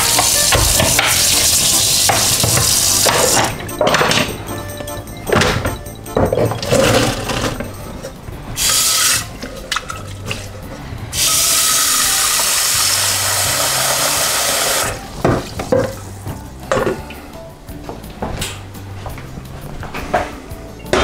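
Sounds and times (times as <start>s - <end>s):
pot clanking: 0.0s - 10.6s.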